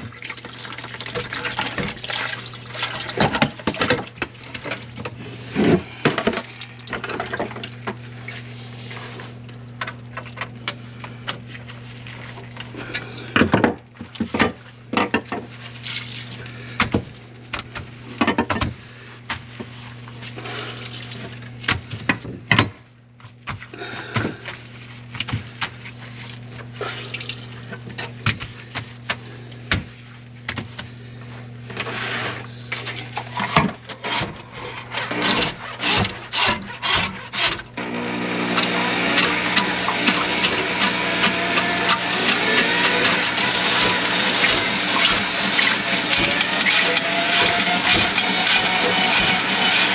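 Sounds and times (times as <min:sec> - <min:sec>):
water splashing in sink: 0:00.0 - 0:05.0, 0:05.9 - 0:10.5, 0:11.1 - 0:13.0, 0:13.6 - 0:17.8, 0:24.3 - 0:28.4
electric motor hum: 0:31.4 - 0:49.9.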